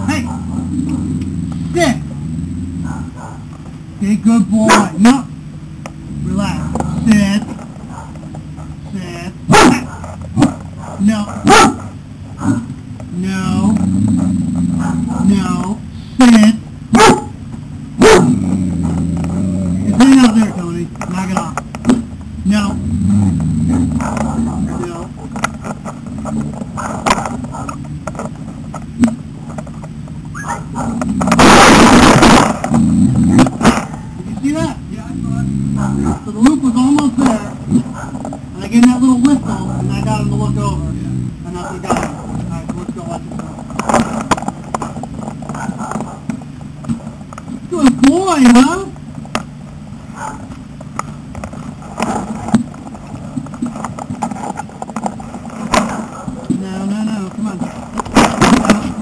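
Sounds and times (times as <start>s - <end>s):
low rumble: 0.0s - 4.6s, 11.9s - 45.4s
loud rough noise: 0.0s - 11.2s, 11.8s - 50.0s, 50.6s - 59.0s.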